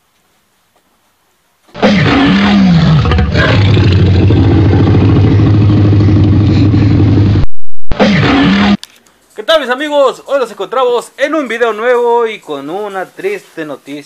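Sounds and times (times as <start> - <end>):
dinosaur roar: 1.8 - 7.4, 8.0 - 8.8
low steady rumble: 2.9 - 7.5.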